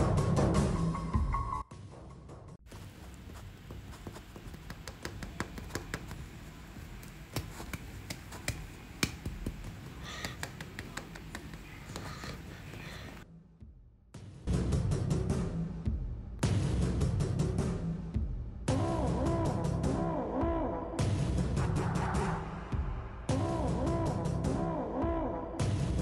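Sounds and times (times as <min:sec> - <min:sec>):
card tapping and scraping on vinyl: 0:02.8 - 0:13.0.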